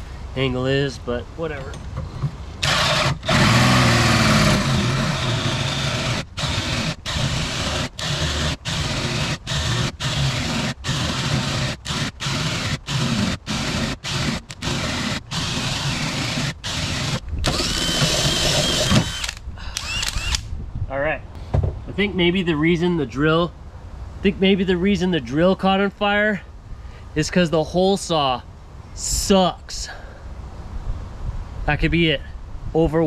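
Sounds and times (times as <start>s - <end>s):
power drill with hole saw: 2.6s - 20.4s.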